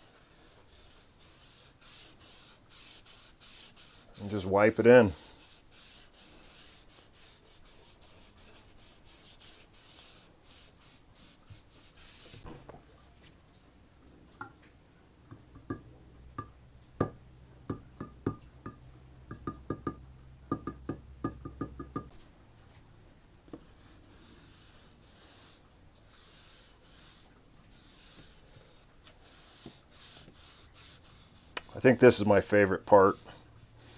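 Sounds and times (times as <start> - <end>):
rag wiping wooden handle: 0.0 - 12.5, 23.6 - 33.9.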